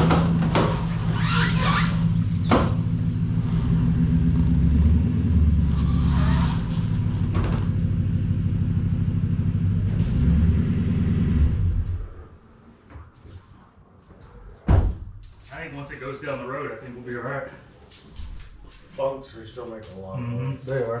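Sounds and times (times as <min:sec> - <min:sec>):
trailer creak: 0:00.0 - 0:03.9, 0:05.5 - 0:08.0
truck engine running at low speed: 0:01.9 - 0:12.2.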